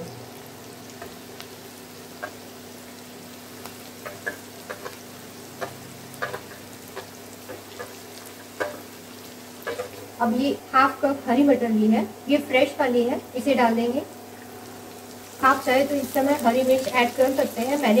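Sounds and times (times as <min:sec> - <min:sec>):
onions frying in oil: 0:00.0 - 0:18.0
sharp pops and crackles: 0:03.6 - 0:08.9.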